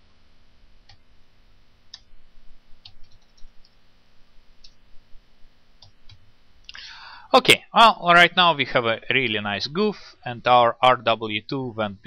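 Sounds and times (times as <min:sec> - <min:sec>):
keyboard keys clicking: 0:02.8 - 0:03.8.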